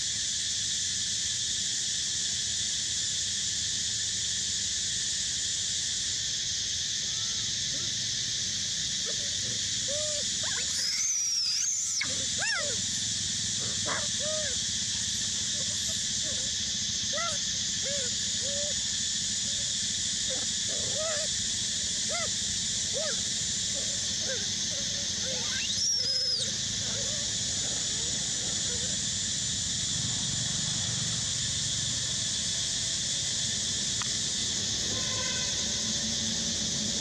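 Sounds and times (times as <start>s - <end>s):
steady high hiss: 0.0s - 37.0s
animal chirps: 9.1s - 12.8s, 23.8s - 27.3s.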